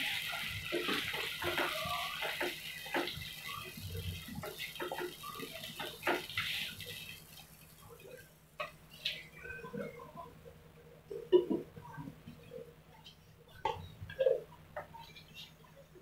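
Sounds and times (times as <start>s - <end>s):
paste sizzling in hot oil: 0.0s - 7.6s.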